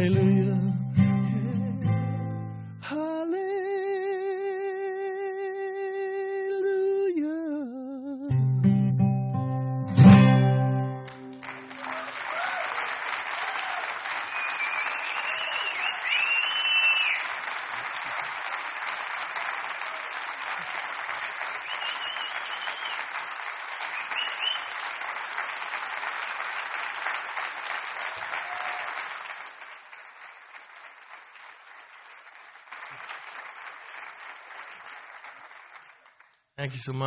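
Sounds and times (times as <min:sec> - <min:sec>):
audience applauding: 0:10.3 - 0:37.0.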